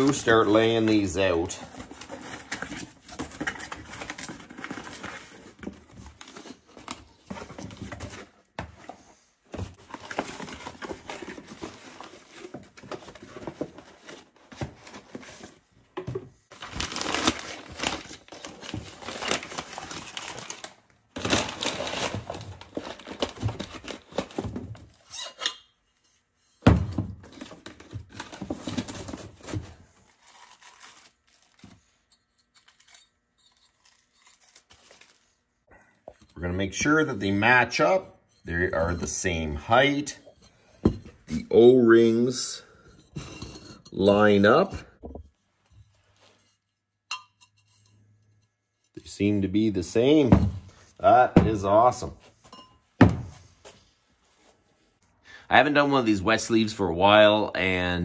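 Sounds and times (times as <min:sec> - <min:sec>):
packaging rustling and tearing: 0:00.0 - 0:08.4, 0:16.5 - 0:25.2, 0:27.2 - 0:35.4.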